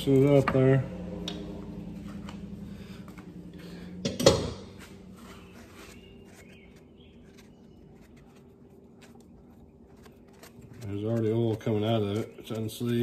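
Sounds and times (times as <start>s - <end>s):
faint steady hum: 0.0s - 13.0s
rag handling: 4.7s - 13.0s.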